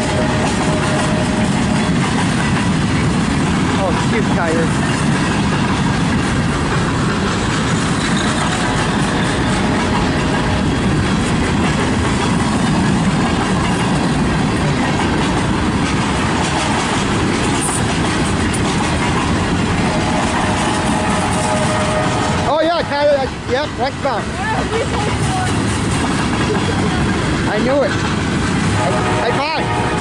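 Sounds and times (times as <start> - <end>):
train wheels rolling on rail: 0.0 - 30.0.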